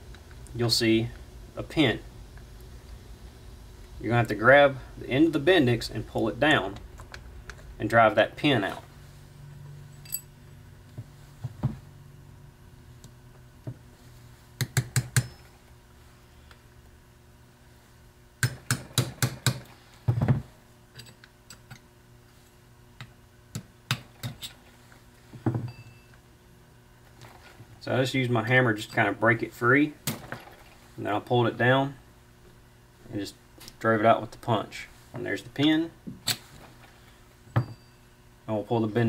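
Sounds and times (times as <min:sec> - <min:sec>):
tools and parts clinking: 0:09.9 - 0:10.4, 0:20.9 - 0:21.8.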